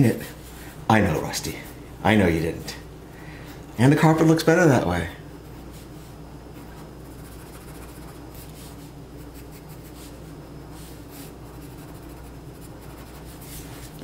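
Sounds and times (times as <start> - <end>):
steady low hum: 0.0 - 14.0
pencil scratching on paper: 6.6 - 10.2, 11.1 - 14.0.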